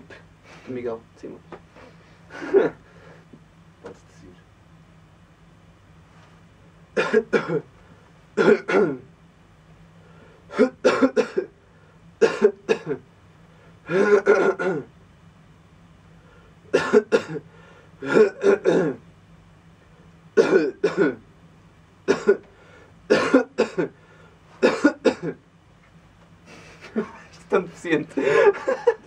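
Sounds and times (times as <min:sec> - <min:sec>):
man coughing: 0:02.3 - 0:02.8, 0:07.0 - 0:07.7, 0:08.4 - 0:09.1, 0:10.5 - 0:11.6, 0:12.2 - 0:13.0, 0:13.9 - 0:14.9, 0:16.7 - 0:19.0, 0:20.4 - 0:21.2, 0:22.1 - 0:22.5, 0:23.1 - 0:24.0, 0:24.6 - 0:25.4, 0:26.6 - 0:27.3, 0:28.1 - 0:29.0.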